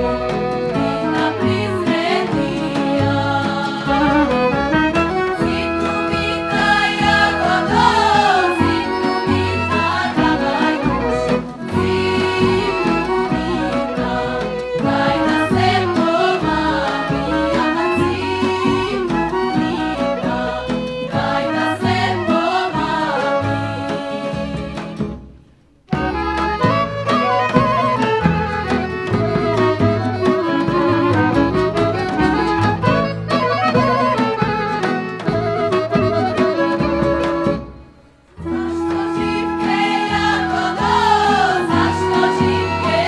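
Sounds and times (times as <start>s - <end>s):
instrumental accompaniment: 0.0s - 43.0s
women's choir singing: 0.6s - 4.5s, 5.3s - 25.1s, 38.4s - 43.0s.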